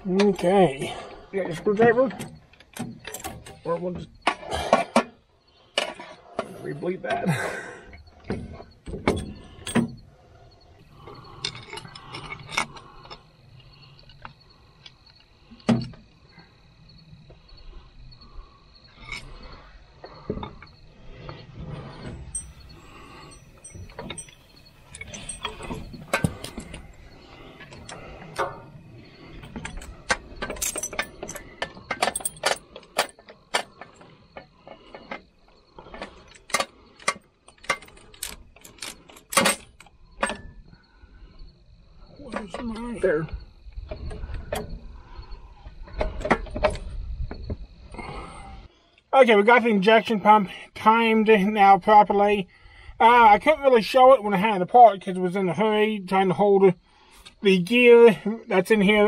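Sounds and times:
metal clinks and knocks: 1.6s - 5.2s, 8.0s - 10.1s, 10.8s - 16.2s, 18.9s - 40.8s, 42.2s - 48.2s.

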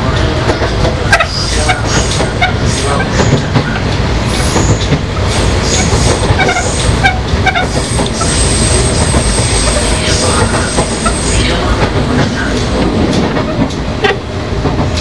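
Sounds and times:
electric train rumbling: 0.0s - 15.0s
train wheel squeals: 0.5s - 11.6s.

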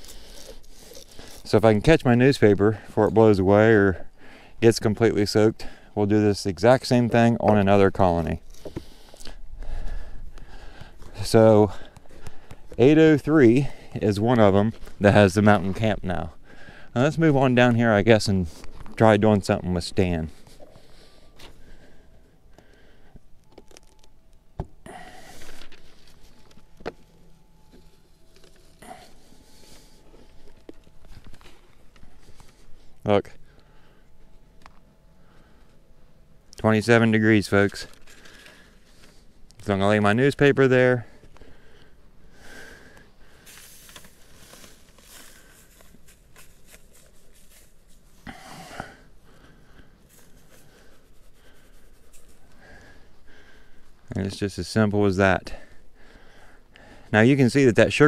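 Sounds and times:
newspaper rustling: 0.0s - 1.6s, 25.2s - 32.8s, 37.6s - 39.3s, 43.3s - 48.2s.

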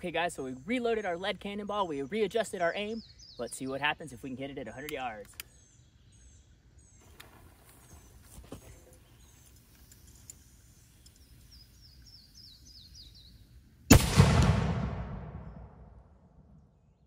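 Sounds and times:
cannon blast: 13.9s - 16.6s.

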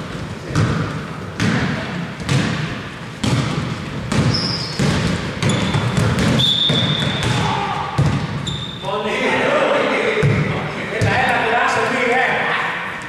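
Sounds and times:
basketball bouncing on hardwood floor: 0.1s - 8.4s
sneaker squeak: 4.1s - 9.0s.

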